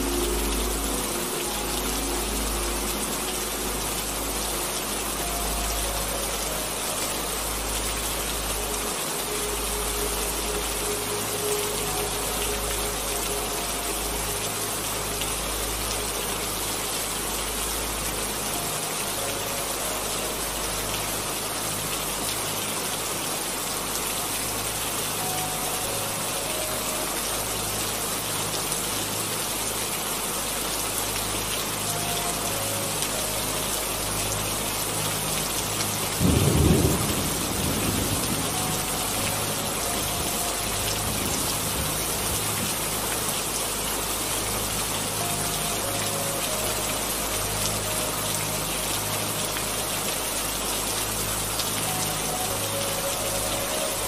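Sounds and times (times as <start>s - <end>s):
steady rain hiss: 0.0s - 54.0s
thunder rumble: 36.2s - 39.6s.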